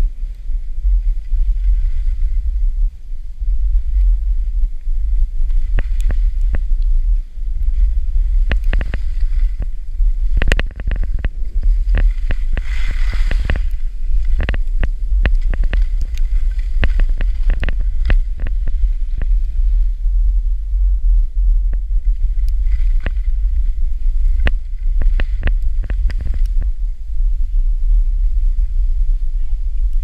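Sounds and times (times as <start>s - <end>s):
wind buffeting microphone: 0.0s - 30.0s
skis clicking and hissing on snow: 3.8s - 20.0s.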